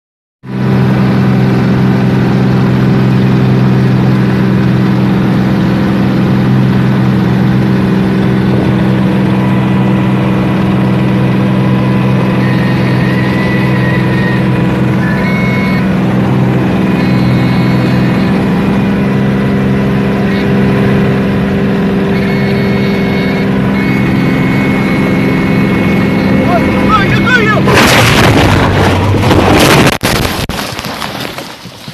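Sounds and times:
aircraft engine droning: 0:00.5 - 0:27.8
thin high tone: 0:11.6 - 0:16.0.

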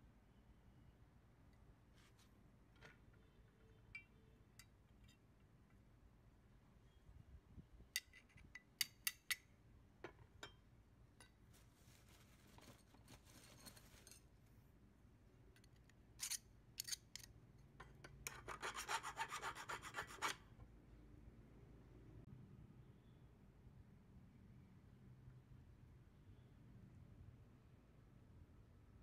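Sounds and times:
metal tool rasping on steel: 0:18.2 - 0:20.4.

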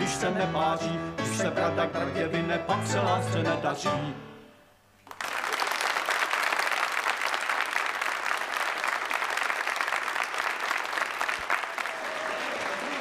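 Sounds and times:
crowd applause: 0:05.0 - 0:13.0.

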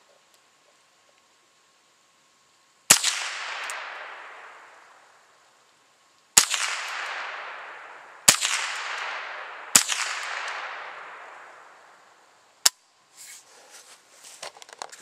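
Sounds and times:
rifle shots with echo: 0:02.9 - 0:05.3, 0:06.4 - 0:12.3.

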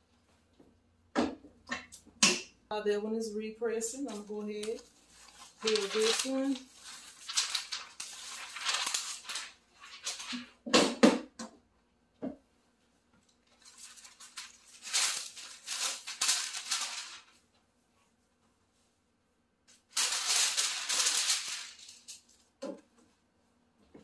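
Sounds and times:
paper sheet rustling: 0:04.0 - 0:10.6, 0:13.4 - 0:17.4, 0:19.8 - 0:22.5
transfer film peeling rustle: 0:04.1 - 0:10.6, 0:13.3 - 0:17.4, 0:19.8 - 0:22.5.

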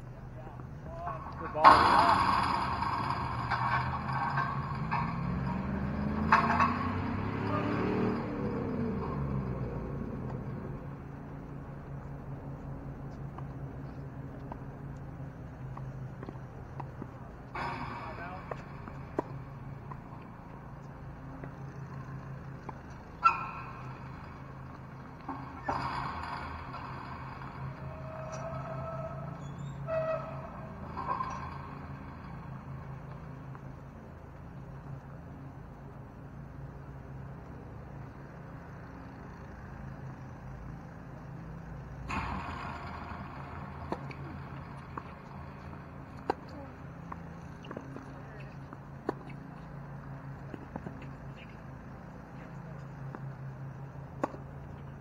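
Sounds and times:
steady low hum: 0:00.0 - 0:55.0
tennis ball bounces: 0:09.8 - 0:28.6, 0:37.1 - 0:55.0.

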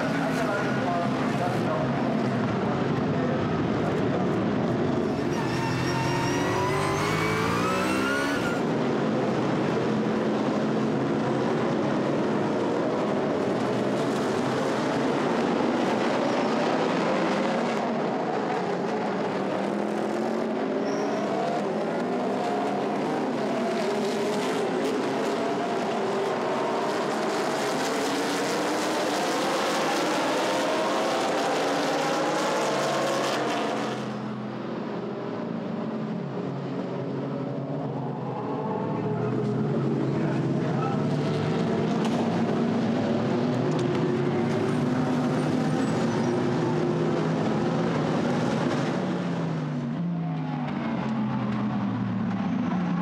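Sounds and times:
race car engines at full throttle: 0:00.0 - 0:53.0.

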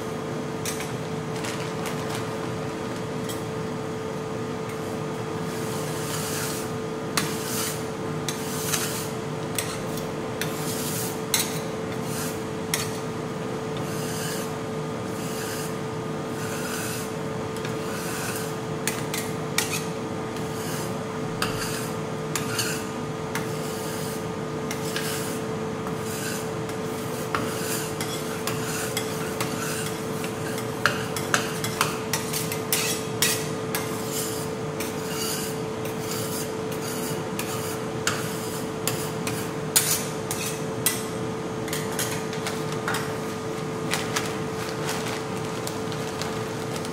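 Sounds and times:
metal spatulas scraping ice cream: 0:05.4 - 0:13.0, 0:13.8 - 0:41.1, 0:41.7 - 0:43.1.

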